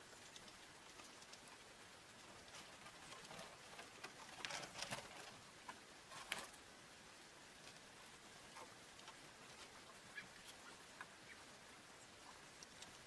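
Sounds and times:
bird wings fluttering: 0:00.0 - 0:06.6.

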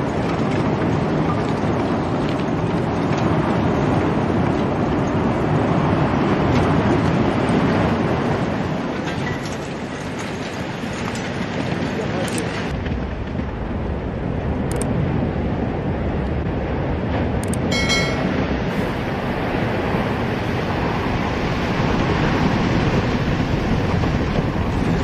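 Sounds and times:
wind buffeting microphone: 0:00.0 - 0:25.0
waves washing against shore: 0:15.0 - 0:25.0
bell-like chime: 0:17.7 - 0:18.4.

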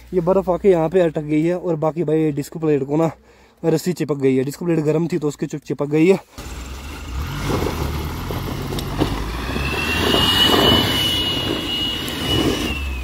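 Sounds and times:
diesel engine running under load: 0:06.4 - 0:13.0
tyres spinning in mud and slush: 0:06.4 - 0:13.0
steady high whine: 0:08.8 - 0:13.0.

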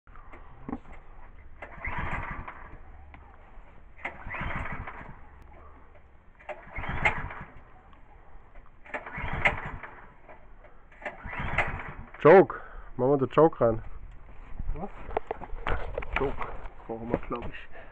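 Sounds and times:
recoil starter pull cranking engine: 0:00.1 - 0:12.8.

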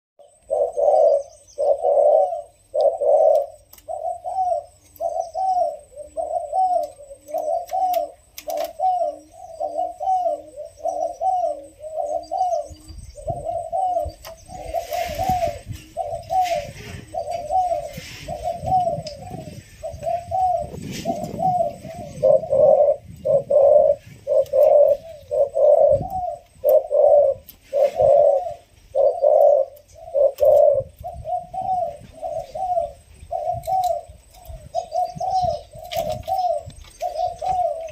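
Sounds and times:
dove cooing: 0:00.2 - 0:37.9.

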